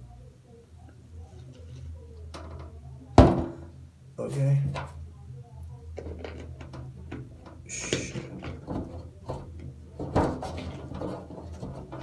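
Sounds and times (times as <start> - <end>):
short hiss: 7.7 - 8.1.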